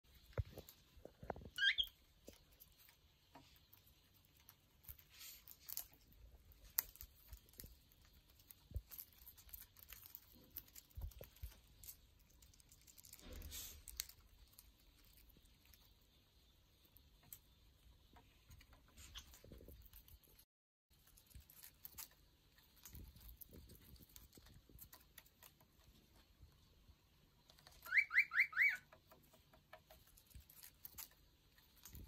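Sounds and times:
bird chirp: 1.4s - 4.1s, 26.4s - 30.3s
bird nibbling and tearing leaves: 1.5s - 16.2s, 18.4s - 26.3s, 27.4s - 32.0s.

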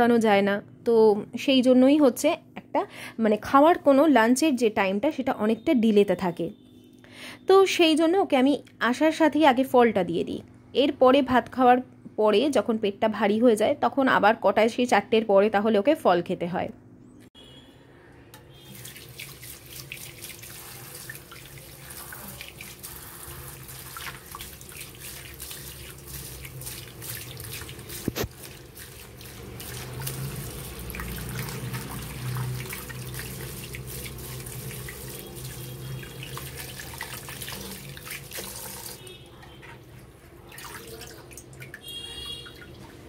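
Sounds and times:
tap water splashing: 18.4s - 39.9s, 40.5s - 43.0s.

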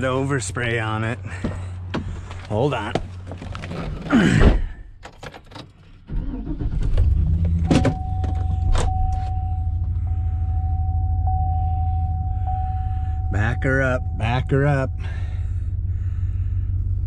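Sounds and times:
car engine starting and idling: 0.0s - 17.0s
steady high tone: 7.7s - 15.4s.

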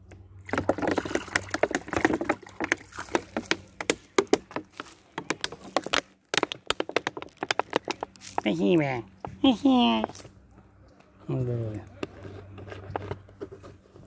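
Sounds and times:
water pouring and splashing: 0.4s - 4.9s
footsteps on dry leaves: 8.1s - 8.6s.

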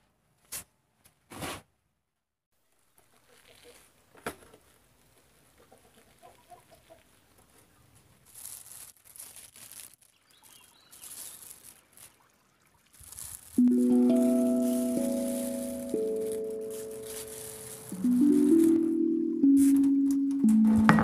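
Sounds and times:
fruit tearing and rustling: 8.2s - 12.2s, 13.0s - 19.0s.

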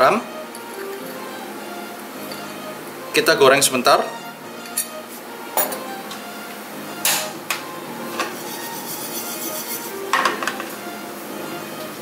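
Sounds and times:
spoon scraping pan: 8.1s - 10.4s.

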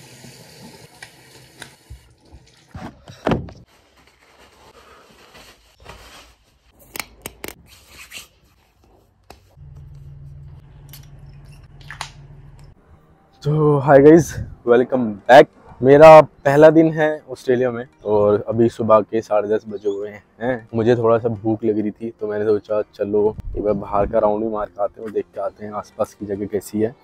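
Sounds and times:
bathroom tap running: 0.0s - 2.8s.

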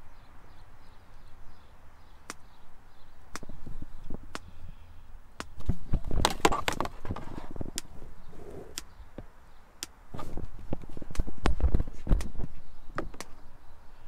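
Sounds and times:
knocks and rustling: 5.6s - 7.8s.

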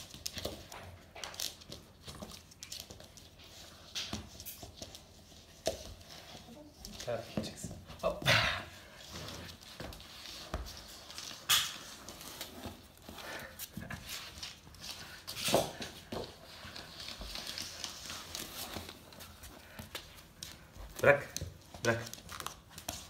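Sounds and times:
dog claws clicking on floor: 0.0s - 7.8s, 9.2s - 23.0s
scuffs and knocks: 0.0s - 23.0s.

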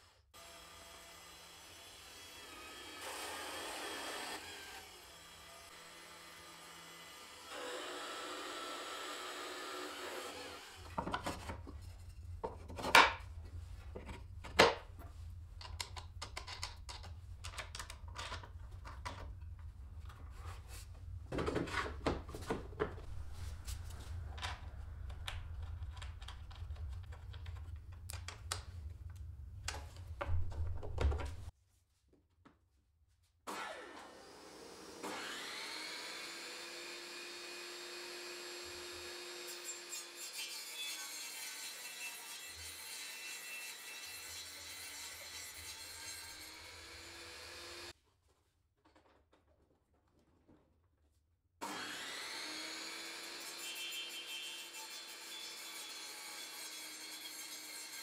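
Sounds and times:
wooden pieces knocking and clicking: 15.6s - 19.4s
table saw motor whining: 33.5s - 39.5s, 51.6s - 55.6s.

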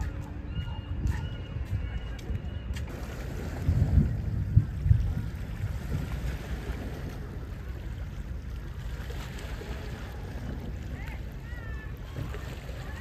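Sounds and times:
wind rumbling on microphone: 0.0s - 13.0s
small waves lapping on rocks: 2.9s - 13.0s.

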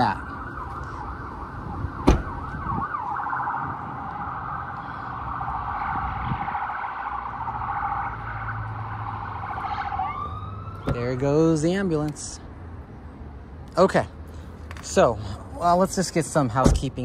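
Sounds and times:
ambulance siren warbling: 0.0s - 11.3s.

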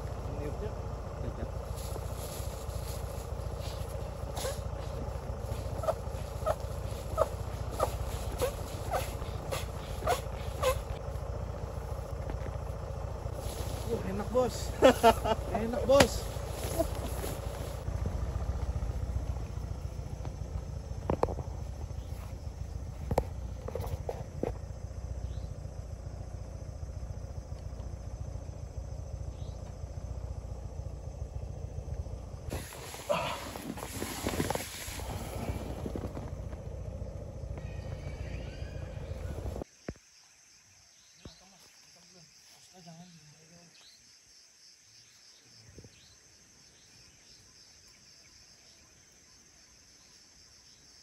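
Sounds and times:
low even rumble: 0.0s - 39.6s
crickets trilling: 0.0s - 51.0s
insects chorus: 0.0s - 51.0s
faint chirp: 24.8s - 33.7s.

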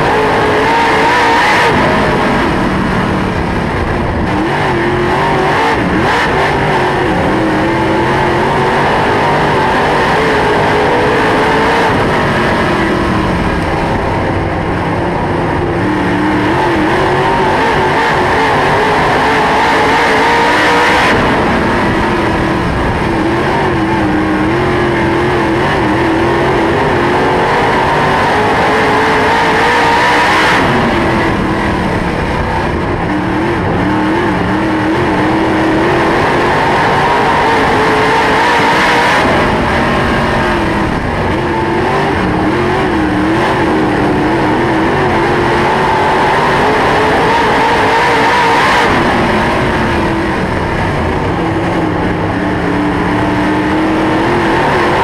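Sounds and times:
other race car engines: 0.0s - 55.0s
race car engine revving: 0.0s - 55.0s.

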